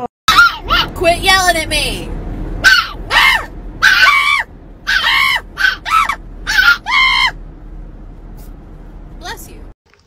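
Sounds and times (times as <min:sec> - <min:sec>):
puppy yowling: 0:00.3 - 0:00.9, 0:02.6 - 0:07.4.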